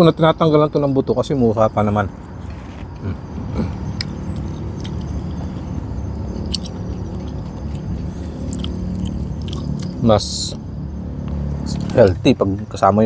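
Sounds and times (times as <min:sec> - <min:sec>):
steady low hum: 0:00.0 - 0:13.0
person chewing food: 0:02.4 - 0:10.0.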